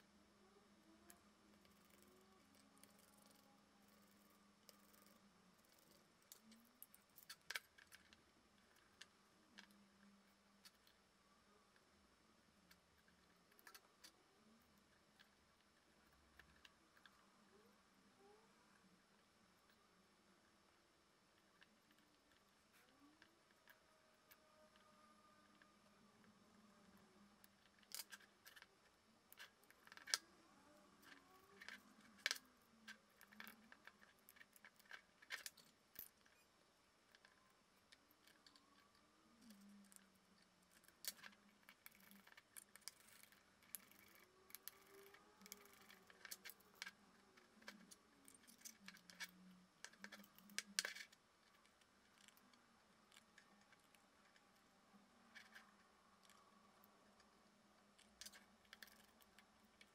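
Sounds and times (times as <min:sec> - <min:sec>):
small plastic parts clicking: 0:01.1 - 0:09.8, 0:12.6 - 0:17.2, 0:26.9 - 0:54.6, 0:55.3 - 0:59.9.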